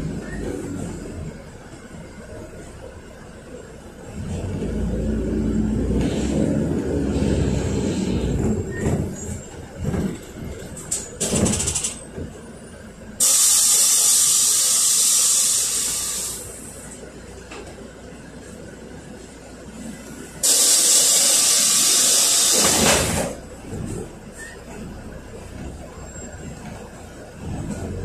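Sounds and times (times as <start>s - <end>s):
bus engine running low: 0.0s - 28.0s
compressed air hiss: 13.2s - 16.7s, 20.4s - 23.2s.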